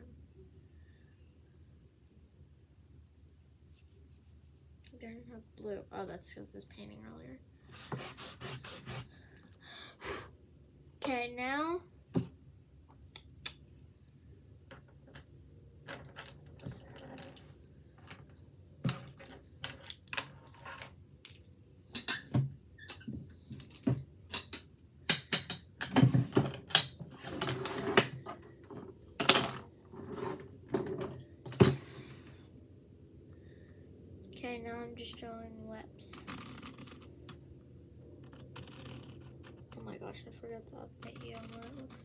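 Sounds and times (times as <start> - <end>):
markers drawing on canvas: 7.7 - 9.1.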